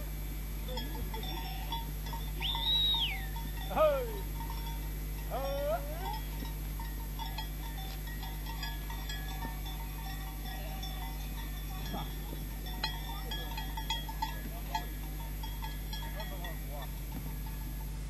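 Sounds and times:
steady low hum: 0.0s - 18.0s
light clinks and tinkles: 0.6s - 18.0s.

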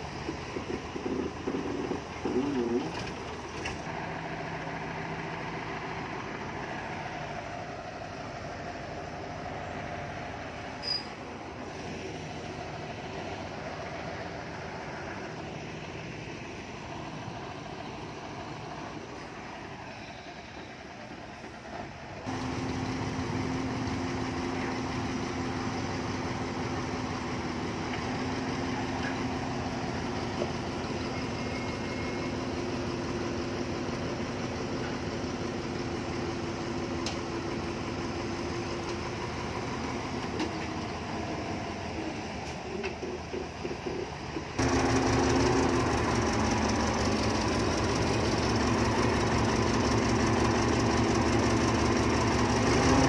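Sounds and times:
diesel machinery engines running: 0.0s - 53.0s.

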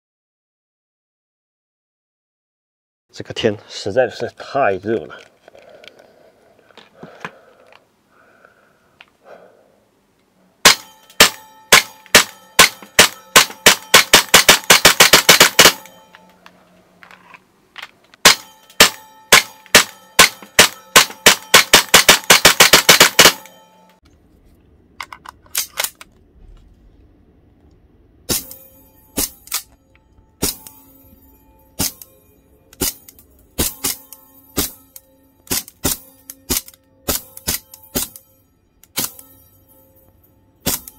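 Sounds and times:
airsoft pistol rapid firing: 10.6s - 15.9s, 18.2s - 23.5s.

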